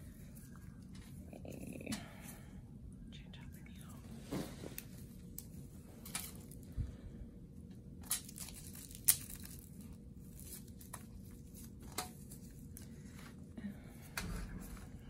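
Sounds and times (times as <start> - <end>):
paper and plastic wrappers tearing: 8.0 - 12.9.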